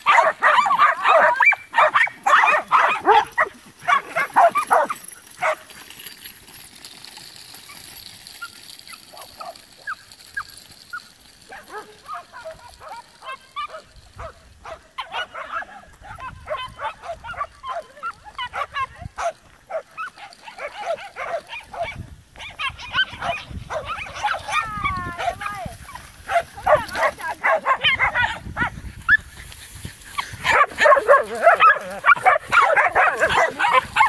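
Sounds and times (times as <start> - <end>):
dogs barking: 0.0 - 5.6, 11.5 - 25.6, 26.3 - 29.2, 30.4 - 34.0
dogs yapping and yipping: 0.0 - 34.0.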